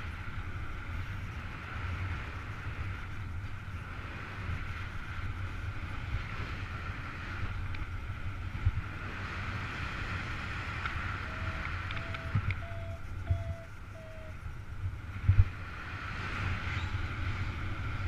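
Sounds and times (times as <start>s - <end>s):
wind rushing over microphone: 0.0s - 18.0s
short steady beep: 11.2s - 14.4s.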